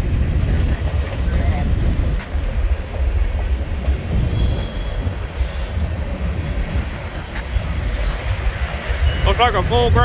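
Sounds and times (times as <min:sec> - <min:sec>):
train wheels rumbling on rail: 0:00.0 - 0:10.0
faint wheel squeal: 0:04.2 - 0:05.8.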